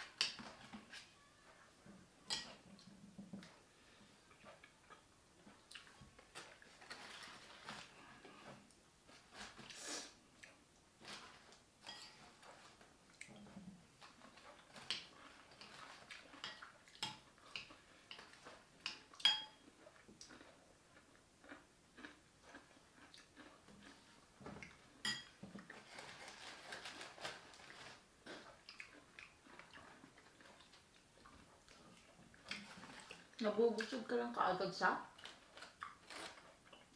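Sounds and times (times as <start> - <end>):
chewing: 2.4 - 11.6, 12.2 - 34.0, 35.1 - 36.9
chopsticks and spoon clicking bowls: 18.8 - 19.6.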